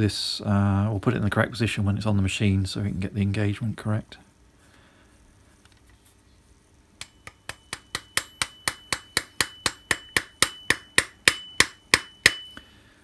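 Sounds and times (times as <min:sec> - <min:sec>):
mallet tapping steel gear: 0:07.0 - 0:12.6
high ring from steel part: 0:07.0 - 0:12.8.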